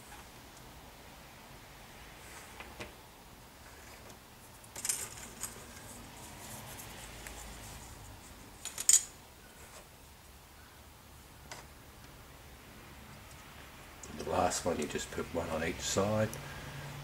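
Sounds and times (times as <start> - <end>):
plastic parts clattering: 4.7 - 6.0.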